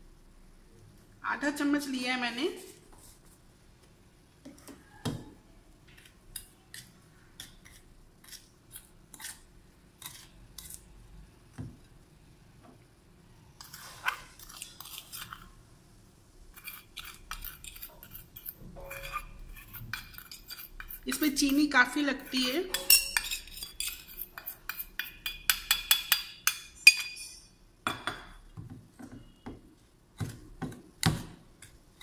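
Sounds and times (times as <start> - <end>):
spoon scraping steel bowl: 13.6 - 15.5, 16.5 - 27.6.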